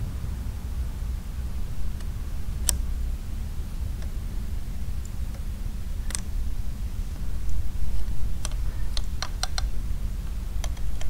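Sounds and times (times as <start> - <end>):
steady low hum: 0.0 - 11.0
small sharp metal clicks: 4.9 - 6.5, 7.4 - 11.0.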